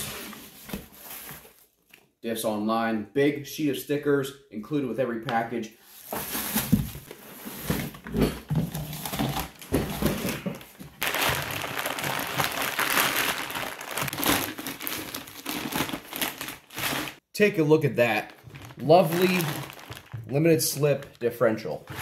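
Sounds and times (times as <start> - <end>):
plastic bag crinkling: 9.0 - 17.2, 18.0 - 21.3.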